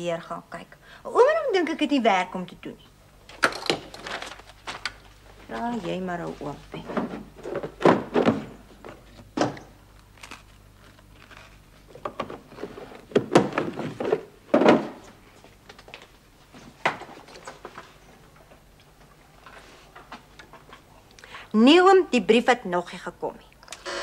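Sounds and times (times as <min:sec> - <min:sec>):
objects thumping and clattering: 0:06.8 - 0:09.7, 0:12.0 - 0:15.2.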